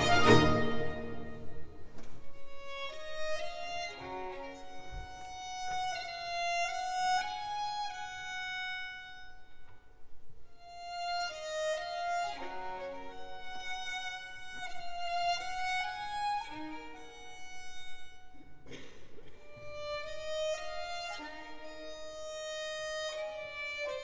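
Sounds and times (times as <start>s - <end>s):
full ensemble playing: 0.0s - 2.0s
violins playing quiet melody: 0.0s - 9.2s.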